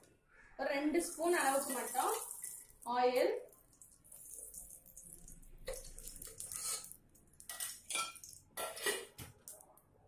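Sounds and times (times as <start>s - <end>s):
hand scraping aluminium pot: 6.4s - 9.2s.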